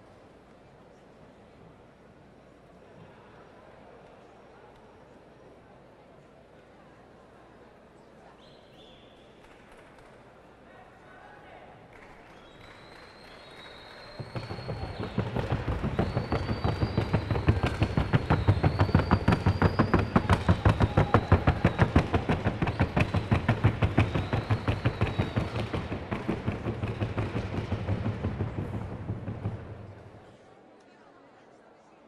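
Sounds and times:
horse hoofbeats: 14.1 - 30.2.

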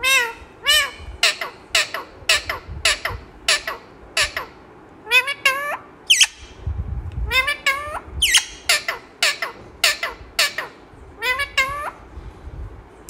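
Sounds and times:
parakeet mimicking cat meows: 0.0 - 6.5, 7.3 - 12.0.

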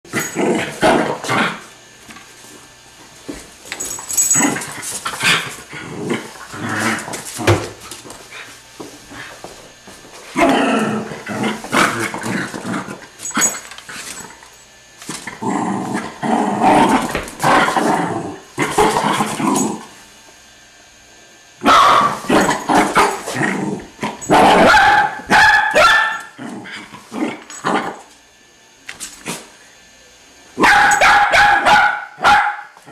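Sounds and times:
dog growling and barking: 0.1 - 1.7, 4.2 - 7.8, 10.3 - 14.4, 15.1 - 19.9, 21.6 - 28.1.

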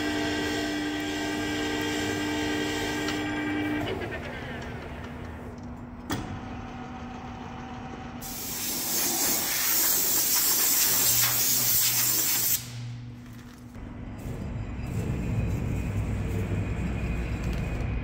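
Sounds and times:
air blow gun hissing: 8.2 - 12.8.

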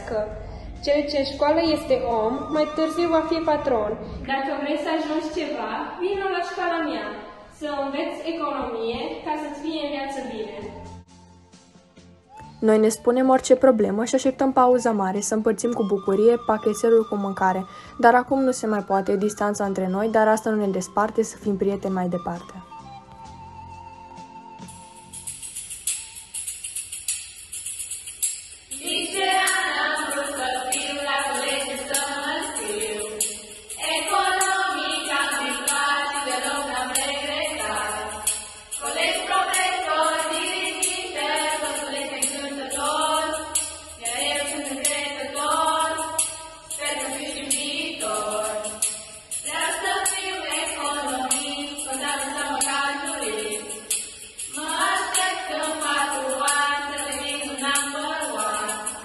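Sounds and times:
group of voices singing: 0.0 - 4.4, 28.7 - 59.0
tambourine jingling: 24.1 - 59.0.

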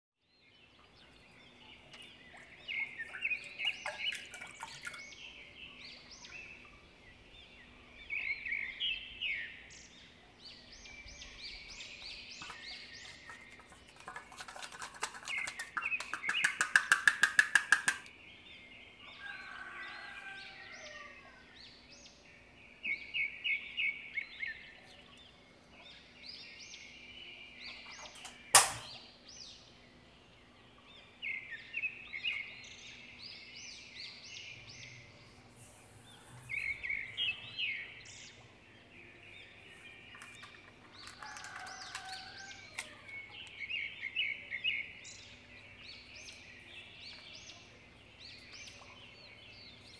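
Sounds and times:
birds chirping: 0.2 - 49.9
sharp click: 28.2 - 29.0.

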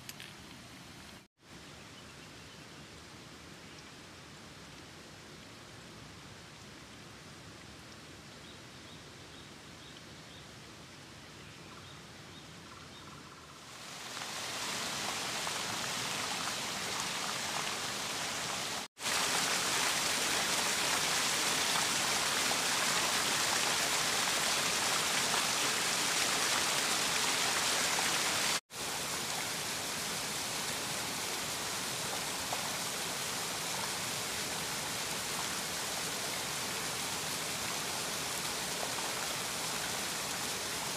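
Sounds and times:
stream rushing over stones: 13.7 - 40.9.

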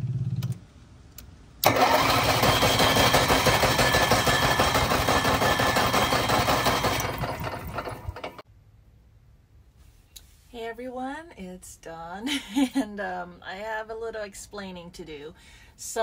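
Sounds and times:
generator engine running: 1.6 - 8.4.

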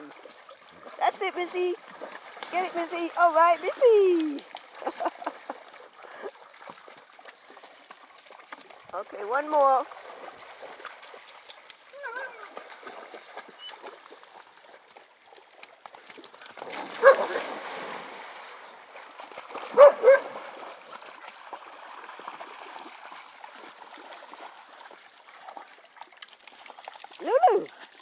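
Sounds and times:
water splashing and trickling: 0.0 - 28.0
dogs barking: 19.8 - 20.4.

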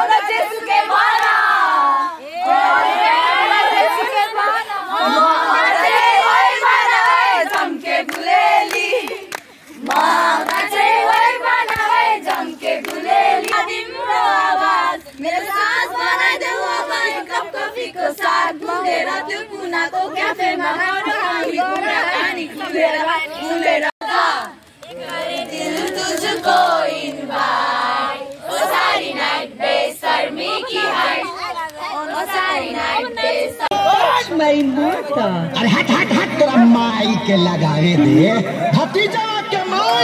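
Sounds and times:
young women singing in chorus: 0.0 - 36.2
hand claps: 7.5 - 13.6.

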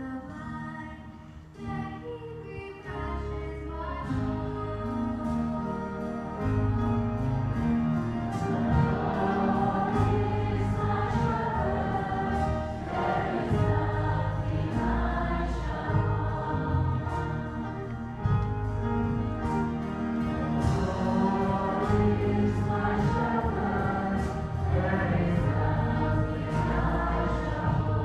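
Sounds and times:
girl singing into a microphone: 0.0 - 5.5
instrumental accompaniment: 2.9 - 28.0
voices singing along: 8.2 - 18.4, 19.7 - 28.0.

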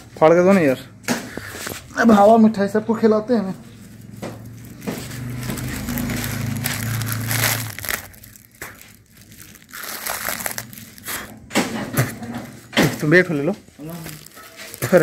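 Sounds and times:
plastic packet crinkling: 3.6 - 11.4, 13.0 - 15.0.

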